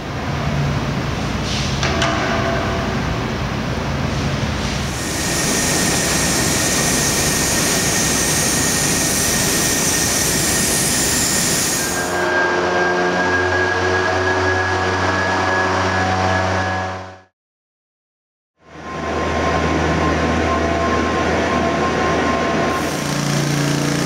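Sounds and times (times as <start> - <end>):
spray rig hissing: 4.6 - 12.1.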